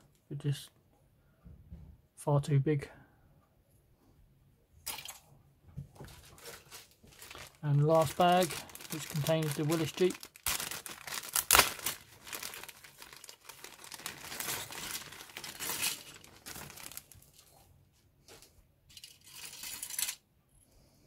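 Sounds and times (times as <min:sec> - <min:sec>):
plastic bag crinkling: 0:06.0 - 0:17.5, 0:18.9 - 0:20.2.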